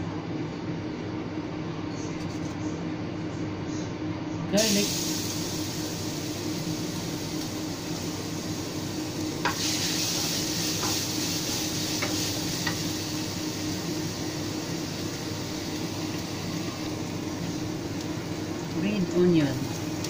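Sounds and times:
steady low hum: 0.0 - 20.0
garlic sizzling in hot oil: 4.6 - 20.0
spatula stirring in pan: 9.4 - 16.6.

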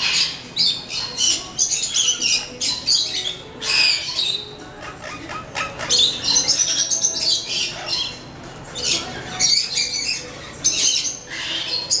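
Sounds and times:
parrots chirping and squawking: 0.0 - 12.0.

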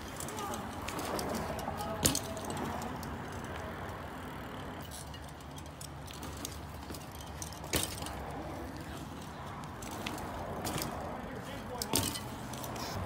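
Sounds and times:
bike landing knock: 1.8 - 2.6, 6.2 - 8.2, 11.8 - 12.3.

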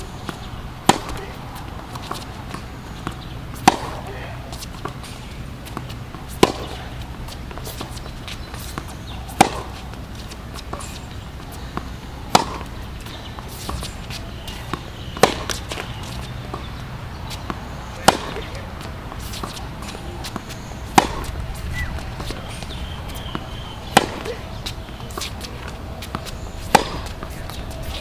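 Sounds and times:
tennis ball bouncing: 0.0 - 28.0
tennis ball hit by racket: 0.0 - 28.0.

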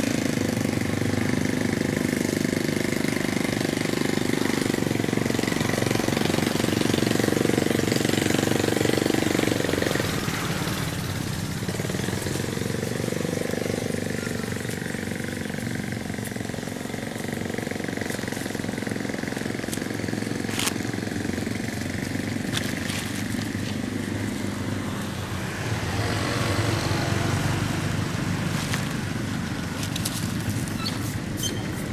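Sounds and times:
engine running: 0.0 - 31.9.

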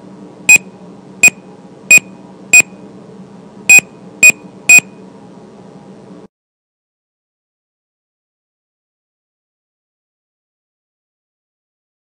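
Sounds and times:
steady low hum: 0.0 - 6.3
short electronic beeps: 0.5 - 2.8, 3.7 - 5.0.

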